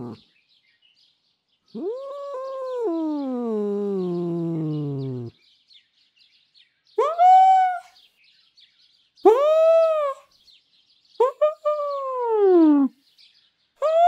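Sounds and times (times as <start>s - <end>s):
cat growling and moaning: 1.8s - 5.3s.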